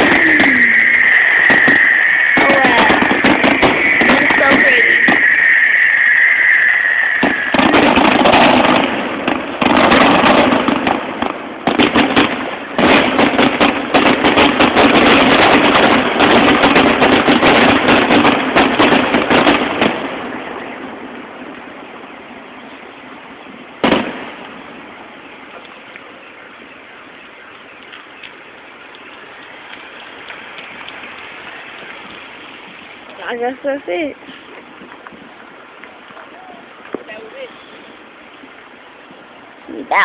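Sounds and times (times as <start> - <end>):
firework whistle: 0.0 - 11.0, 11.7 - 22.3
firework bang: 0.0 - 21.7, 23.8 - 25.7
firework bursts and crackling: 0.0 - 40.0.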